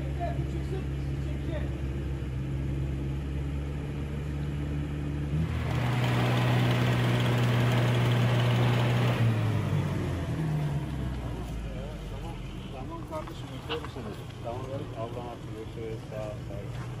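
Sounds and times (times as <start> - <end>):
suv engine pulling under load: 1.9 - 11.9.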